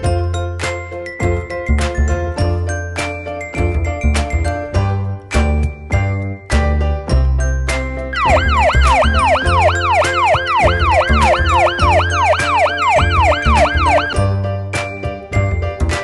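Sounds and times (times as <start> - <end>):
upbeat children's music: 0.0 - 16.0
emergency vehicle siren: 8.2 - 14.2.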